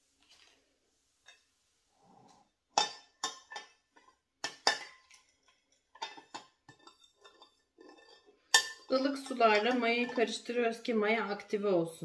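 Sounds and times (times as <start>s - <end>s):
spoon clinking against bowl: 6.0s - 10.3s.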